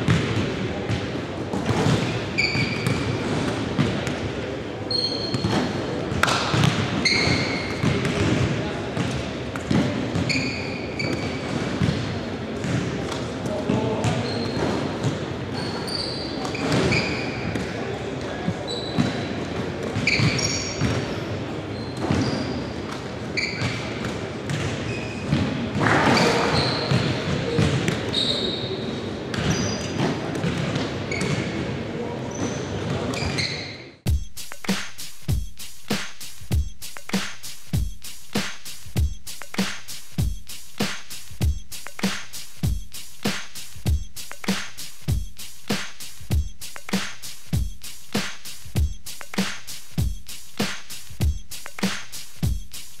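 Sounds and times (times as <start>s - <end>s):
basketballs bouncing on hardwood: 0.1s - 0.4s, 6.2s - 9.1s
sneakers squeaking on court: 1.6s - 4.3s, 4.9s - 17.8s, 18.5s - 19.3s, 19.9s - 21.1s, 21.7s - 31.6s, 32.3s - 33.9s.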